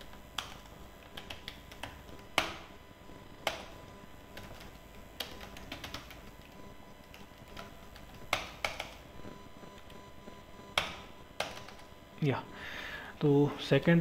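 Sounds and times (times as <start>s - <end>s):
keyboard typing clicks: 0.0s - 2.7s, 3.4s - 9.0s, 10.7s - 11.9s.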